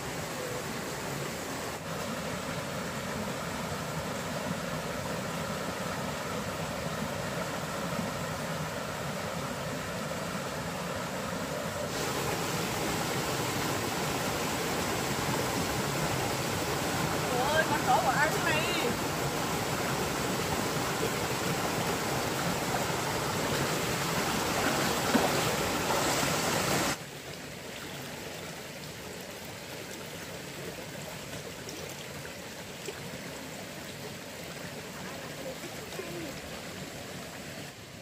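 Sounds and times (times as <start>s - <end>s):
stream rushing over rocks: 0.0s - 38.0s.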